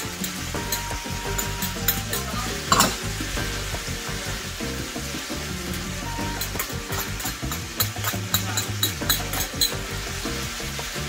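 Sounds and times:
food sizzling in skillet: 0.0 - 11.0
fork scraping pan: 0.3 - 3.1, 5.8 - 9.9.

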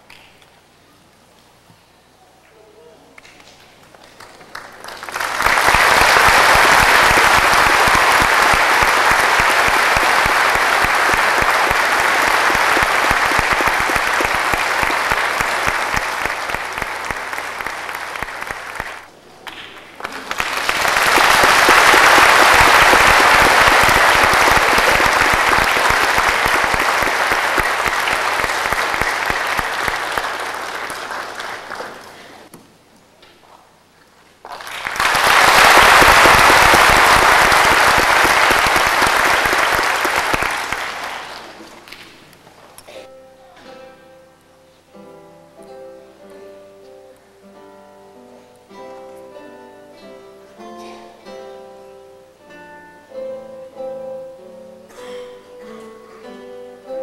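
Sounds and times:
audience applauding: 3.4 - 32.5, 34.4 - 42.4.

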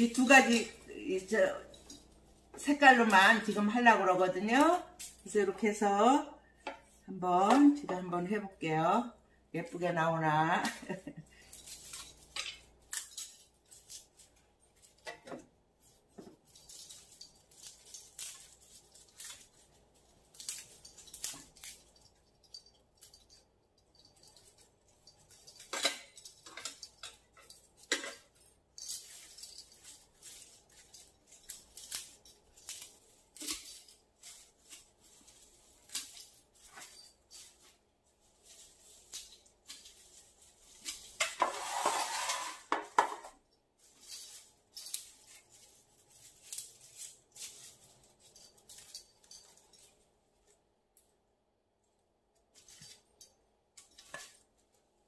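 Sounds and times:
leafy stems rustling: 0.0 - 6.2, 10.3 - 28.4, 29.0 - 43.0, 43.8 - 50.6, 52.5 - 55.0
light clicks taps and clinks: 20.3 - 34.8.

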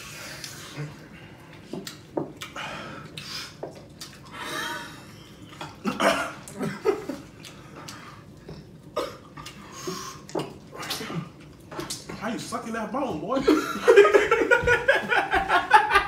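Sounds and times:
men laughing: 13.4 - 16.0.

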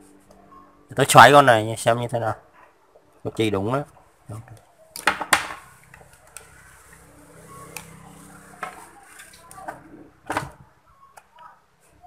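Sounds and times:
faint low hum: 0.0 - 5.0.

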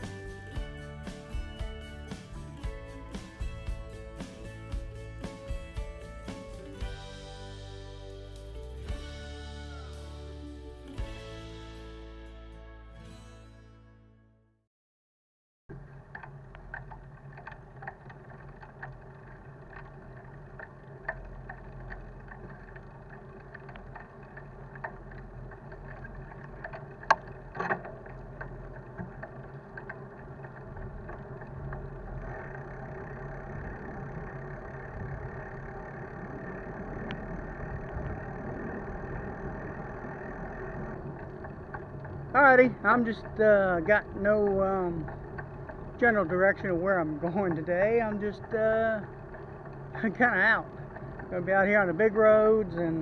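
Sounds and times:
bicycle road rumble: 0.0 - 12.4, 15.7 - 53.0
bike clicks and rattles: 15.7 - 51.4.

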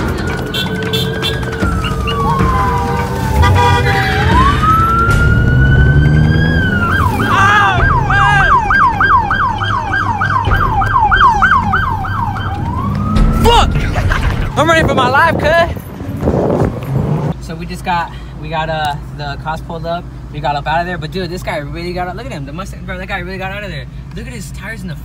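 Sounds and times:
police siren wailing and yelping: 0.0 - 14.1.

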